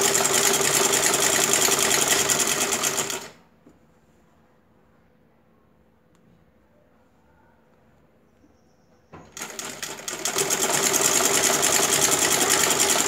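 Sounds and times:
sewing machine running fast: 0.0 - 3.4, 9.4 - 13.0.

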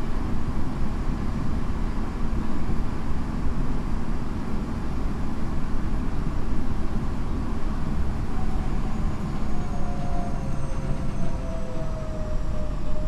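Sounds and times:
train wheels rumbling on rail: 4.9 - 13.0.

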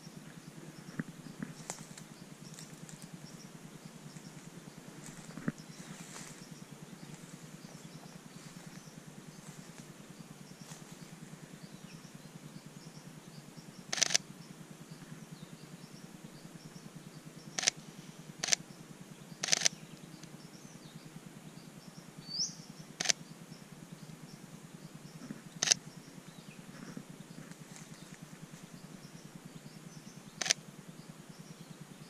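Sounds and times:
bird chirp: 0.0 - 32.0
camera shutter clicking: 13.9 - 14.2, 19.4 - 19.7.

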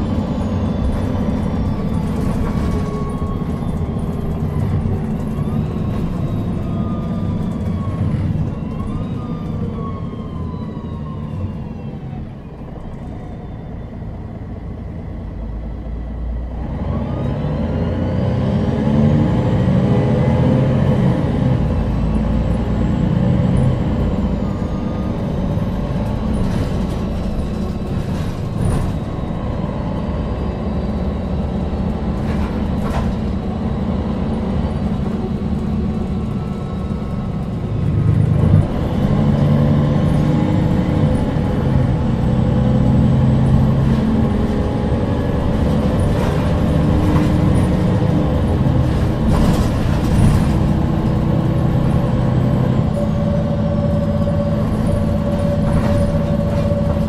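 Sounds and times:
bus engine running: 0.0 - 57.0
knocks and rattles: 45.4 - 52.2.

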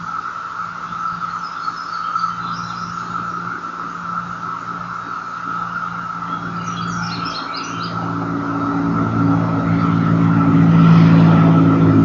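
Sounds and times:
bird chirps: 0.0 - 8.2
cicadas droning: 0.0 - 12.0
vehicle engine: 0.0 - 12.0.

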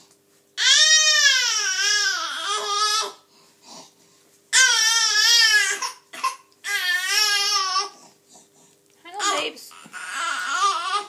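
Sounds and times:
baby crying: 0.6 - 3.2, 4.5 - 8.0, 9.2 - 11.0.

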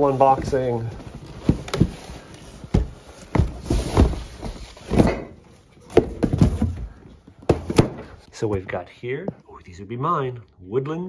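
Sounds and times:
cardboard flaps scraping: 0.0 - 5.3
boxes knocking and thumping: 0.0 - 9.4.

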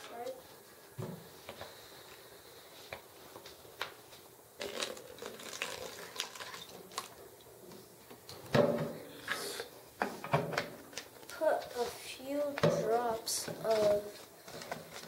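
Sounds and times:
liquid pouring into bottle: 4.6 - 7.2.

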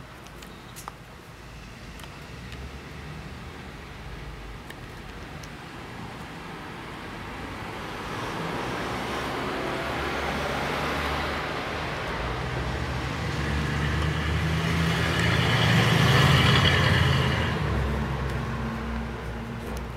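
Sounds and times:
background traffic: 0.0 - 19.9
motor vehicle passing: 7.9 - 19.9.

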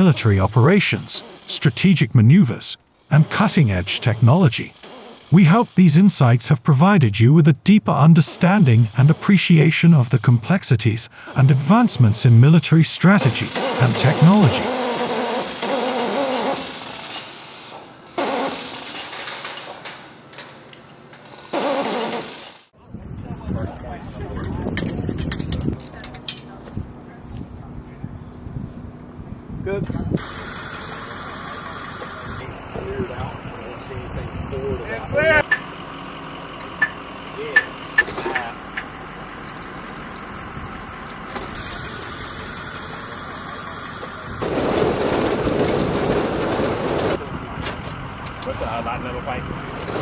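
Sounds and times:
machine drone: 30.2 - 50.0.

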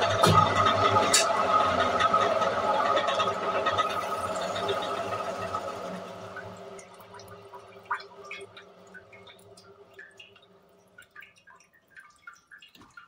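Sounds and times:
spin dryer hum: 0.0 - 10.3
water dripping and trickling: 0.0 - 13.0
small water splashes: 6.2 - 13.0.

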